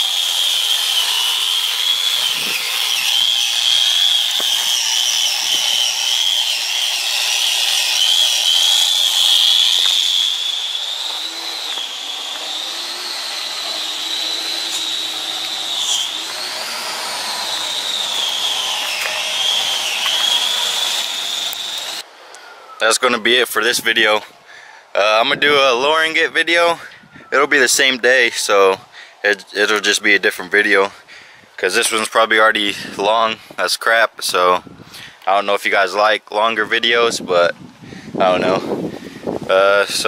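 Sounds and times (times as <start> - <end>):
power tool motor whining: 0.0 - 22.4.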